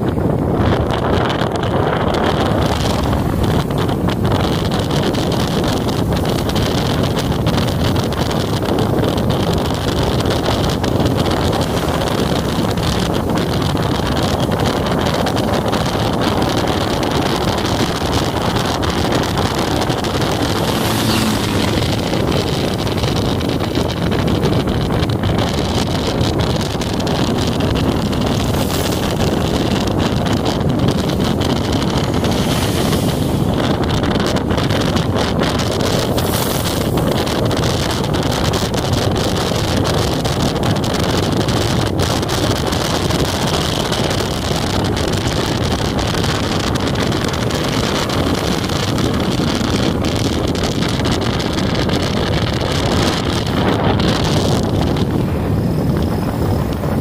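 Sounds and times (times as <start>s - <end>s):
motorcycle running on wet road: 0.0s - 57.0s
wind buffeting microphone: 0.0s - 57.0s.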